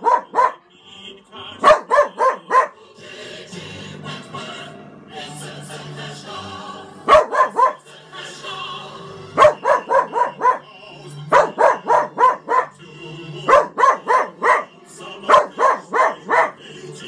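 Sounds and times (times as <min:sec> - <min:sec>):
small dog barking: 0:00.0 - 0:00.6, 0:01.6 - 0:02.8, 0:07.1 - 0:07.8, 0:09.4 - 0:10.6, 0:11.3 - 0:12.8, 0:13.5 - 0:14.7, 0:15.3 - 0:16.6.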